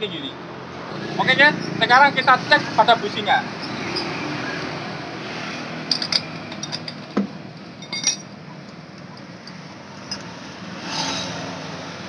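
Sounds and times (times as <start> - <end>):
metal tool clinks: 5.9 - 7.1, 7.8 - 8.3.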